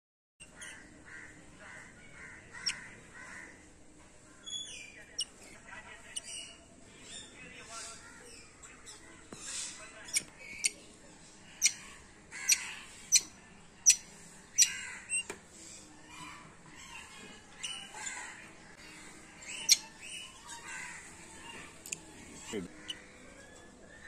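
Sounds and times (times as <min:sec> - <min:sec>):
parrots squawking: 0:00.4 - 0:03.6, 0:11.6 - 0:15.2, 0:16.1 - 0:23.2
parrots chirping: 0:02.1 - 0:03.3, 0:06.0 - 0:10.8, 0:11.5 - 0:15.3, 0:16.0 - 0:23.6.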